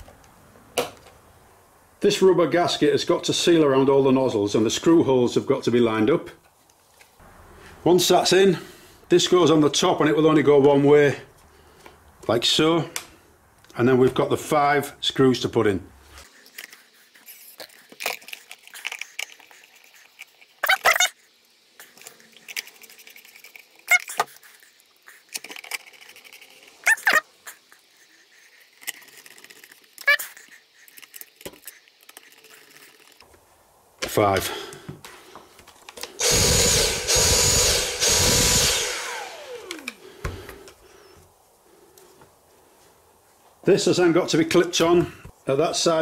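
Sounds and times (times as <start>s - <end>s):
screws driven into plastic: 36.2s - 40.0s
small electric motor whine: 36.2s - 40.0s.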